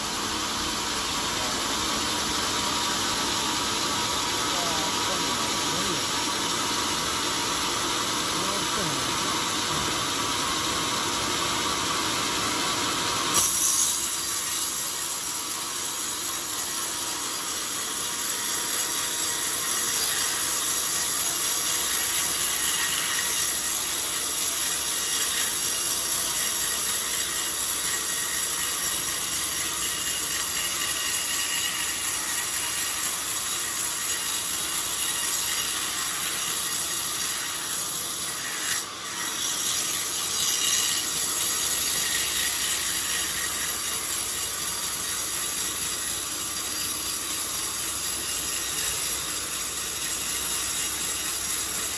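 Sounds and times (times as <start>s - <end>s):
band saw ripping through log: 13.2s - 51.9s.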